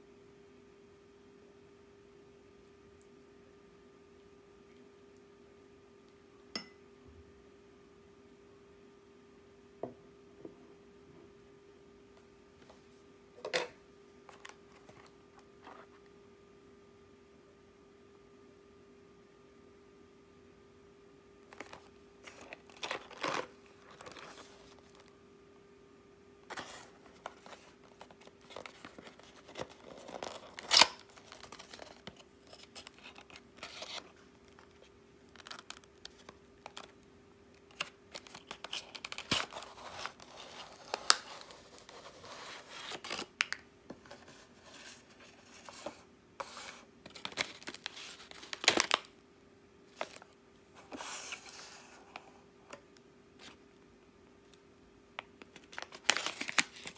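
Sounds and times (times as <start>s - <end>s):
faint steady hum: 0.0s - 56.9s
paperboard box rustling and tearing: 21.6s - 25.0s, 26.5s - 34.0s, 37.8s - 43.3s, 55.6s - 56.9s
plastic pouch crinkling: 27.2s - 37.0s, 47.1s - 49.1s, 55.5s - 56.9s.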